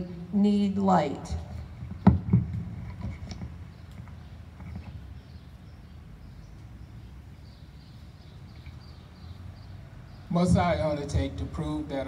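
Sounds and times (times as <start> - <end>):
bird chirps: 1.5 - 11.5.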